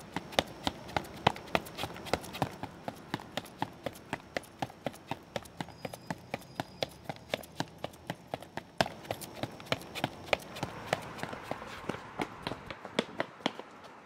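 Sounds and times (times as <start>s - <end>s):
running footsteps on pavement: 0.0s - 14.0s.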